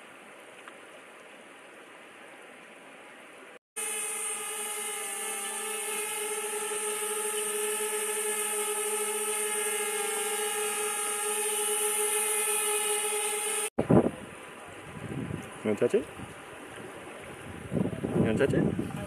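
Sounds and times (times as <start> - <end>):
drone propellers buzzing: 3.8 - 14.0.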